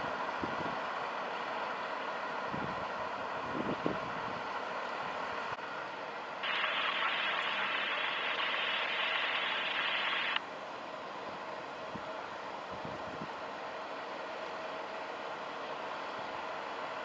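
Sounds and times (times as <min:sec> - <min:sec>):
steady hiss: 0:06.4 - 0:10.4.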